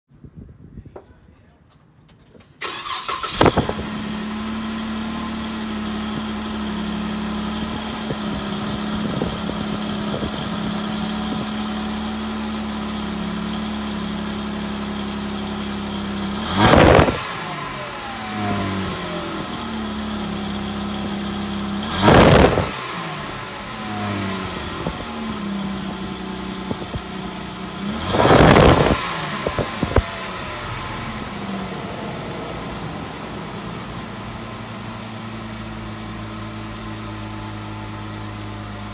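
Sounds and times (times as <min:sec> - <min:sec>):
engine cranking and starting: 0:02.1 - 0:04.8
car engine idling and revving: 0:02.6 - 0:38.9.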